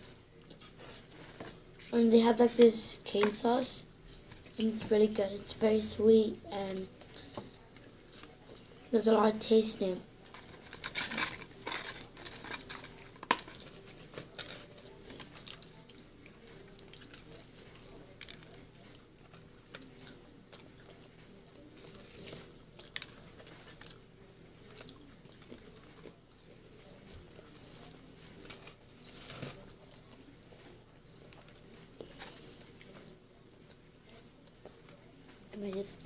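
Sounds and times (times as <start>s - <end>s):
chewing crunchy fried food: 10.1s - 35.4s.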